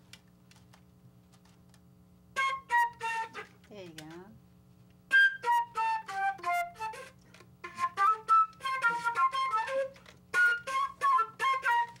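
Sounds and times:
flute playing short phrases: 5.1 - 12.0.

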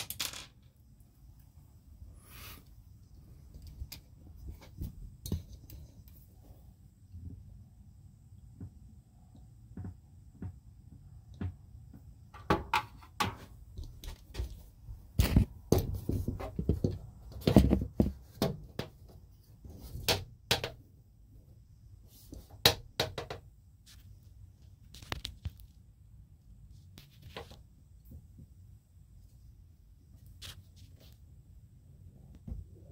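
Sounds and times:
faint low hum: 0.0 - 19.9.

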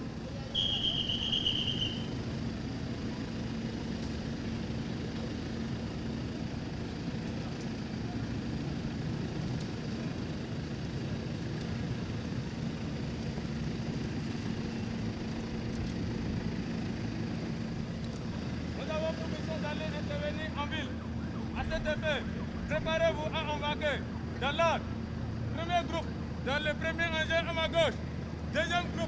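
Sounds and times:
vehicle engine idling: 0.0 - 29.0
shrill whistle-like high tone: 0.5 - 2.1.

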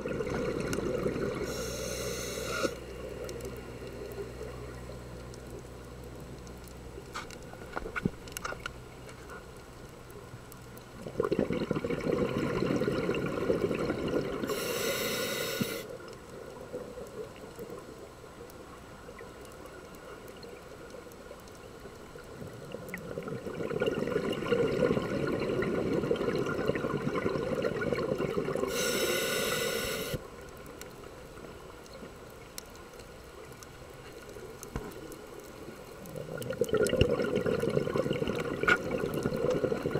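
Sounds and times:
diver exhaling bubbles underwater: 0.0 - 1.7, 11.0 - 15.8, 23.0 - 30.2, 36.1 - 39.9
regulator hiss: 1.4 - 2.9, 14.4 - 15.9, 28.7 - 30.3
faint clicks: 1.9 - 11.1, 15.5 - 23.1, 28.7 - 37.0.

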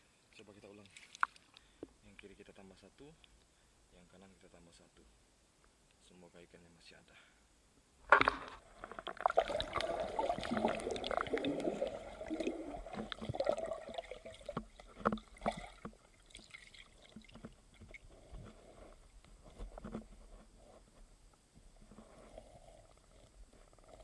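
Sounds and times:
underwater bubbling and gurgling: 8.2 - 19.2.

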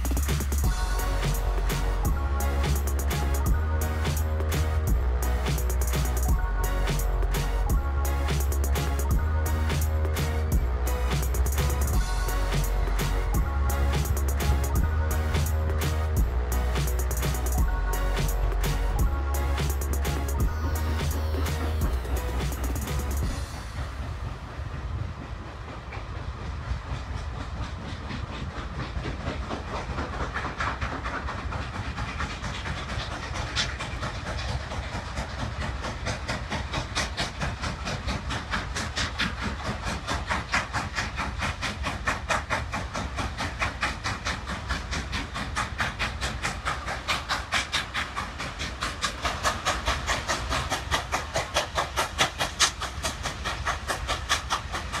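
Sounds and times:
low rumble: 0.0 - 26.4
steam locomotive exhaust chuffs: 0.0 - 55.0.

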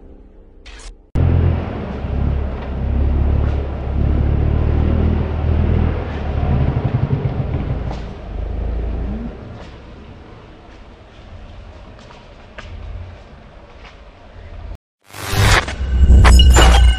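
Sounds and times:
diesel engine revving under load: 1.2 - 10.2.

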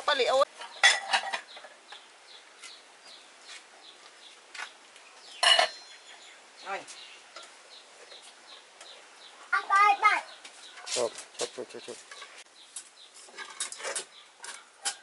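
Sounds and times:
pot lid and bowls clinking: 0.7 - 1.5, 5.4 - 6.0.

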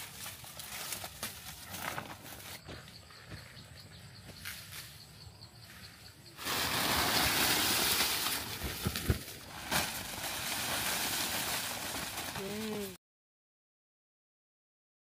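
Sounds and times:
dry corn husks rustling: 0.0 - 3.2, 4.4 - 13.0.

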